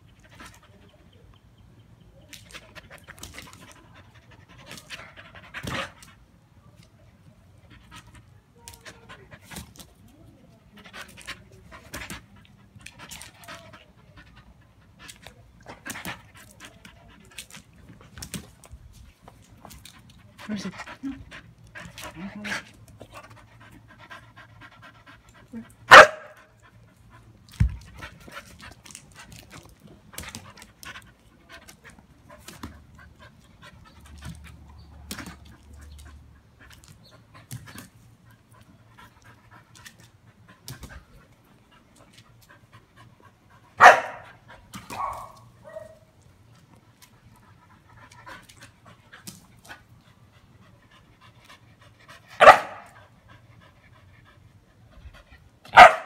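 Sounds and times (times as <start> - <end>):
dog barking: 25.9 - 26.4, 43.8 - 44.2, 44.9 - 46.0, 52.4 - 52.9, 55.7 - 56.0
dog panting: 47.1 - 55.6.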